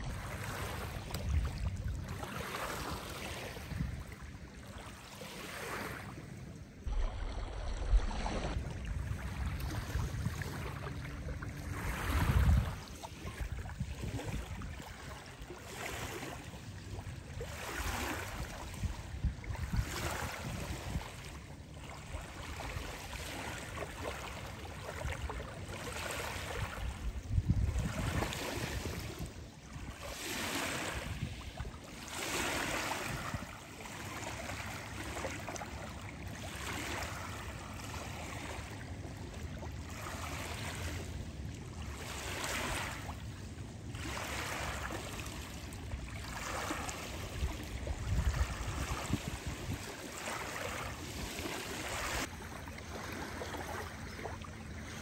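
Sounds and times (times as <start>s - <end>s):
wind rumbling on microphone: 0.0s - 4.7s, 6.8s - 15.4s, 16.6s - 21.5s, 26.3s - 31.8s, 32.5s - 33.7s, 46.4s - 50.1s
small waves lapping on shore: 0.0s - 55.0s.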